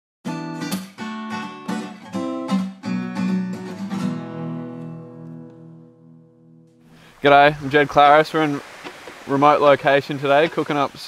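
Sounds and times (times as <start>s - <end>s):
acoustic guitar strumming chords: 0.3s - 7.0s.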